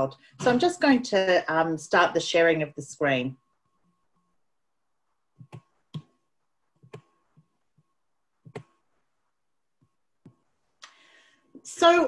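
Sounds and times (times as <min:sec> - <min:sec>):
computer mouse clicking: 0:05.4 - 0:06.2, 0:06.8 - 0:07.2, 0:08.4 - 0:08.8.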